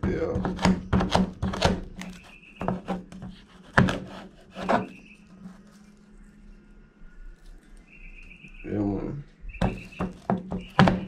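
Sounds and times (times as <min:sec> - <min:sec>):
knife cutting cactus pad: 0:00.1 - 0:06.0, 0:09.6 - 0:11.0.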